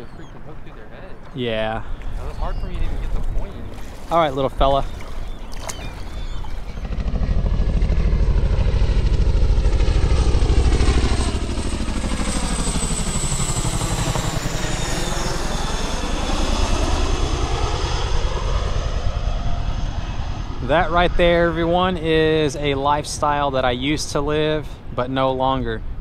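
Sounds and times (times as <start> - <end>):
helicopter rotor beat: 0.0 - 25.2.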